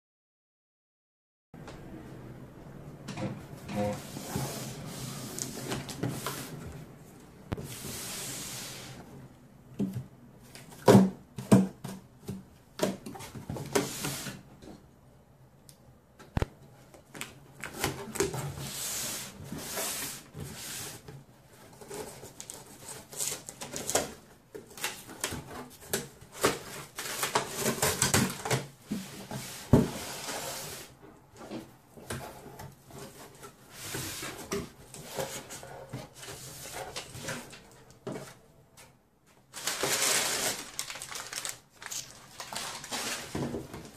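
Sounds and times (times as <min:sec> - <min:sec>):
packing paper rustling: 0:39.4 - 0:43.9.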